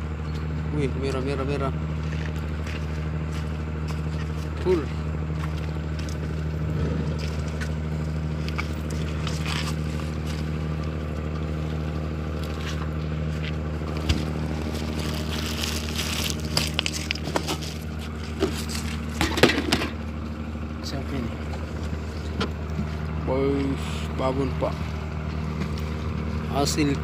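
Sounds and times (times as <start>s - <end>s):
boat engine droning: 0.0s - 27.0s
knocks and clatters: 16.6s - 20.0s.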